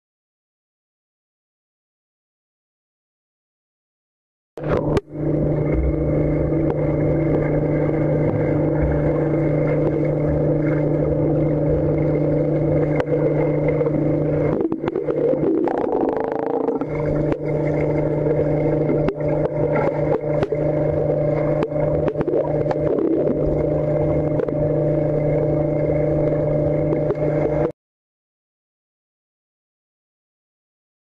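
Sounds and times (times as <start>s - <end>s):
underwater churning: 4.6s - 27.7s
underwater mechanical hum: 4.6s - 27.8s.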